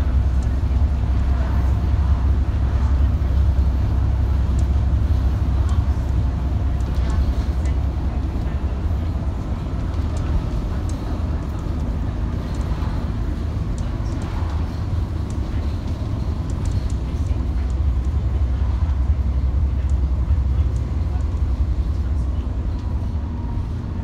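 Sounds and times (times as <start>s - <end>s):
bus engine and road drone: 0.0s - 24.0s
bodywork ticks and rattles: 4.4s - 23.1s.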